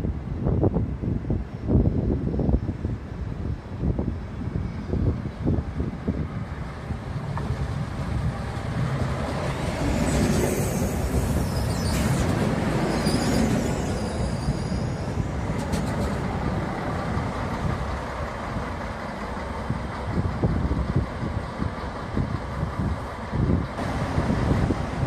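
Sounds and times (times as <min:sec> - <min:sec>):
diesel railcar rumble: 0:00.0 - 0:25.0
wheel noise on rails: 0:00.0 - 0:25.0
high squeal: 0:09.8 - 0:15.5.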